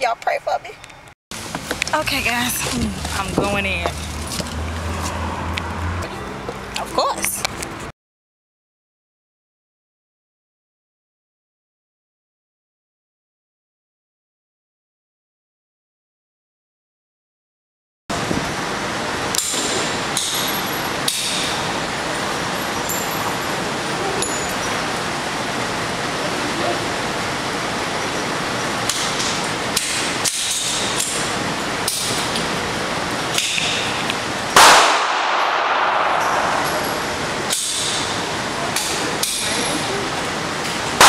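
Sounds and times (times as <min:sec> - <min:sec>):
steady background noise: 0:00.0 - 0:07.9, 0:18.1 - 0:41.0
loud close pistol shot: 0:34.6 - 0:38.1
echoing gunshots: 0:34.6 - 0:38.3.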